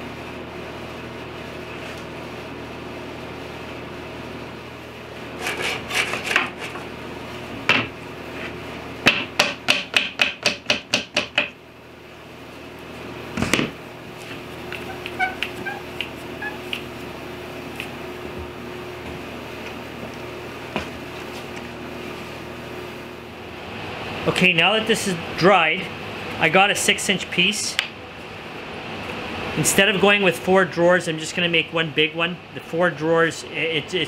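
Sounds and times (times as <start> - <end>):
workshop hum: 0.0 - 34.0
faint small squeaks: 14.8 - 16.8.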